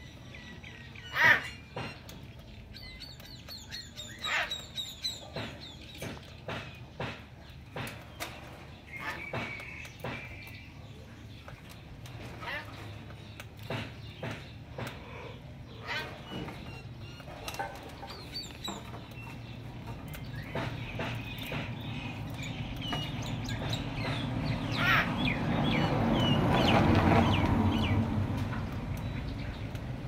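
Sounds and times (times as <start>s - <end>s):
cockatiels chirping and whistling: 2.8s - 5.4s.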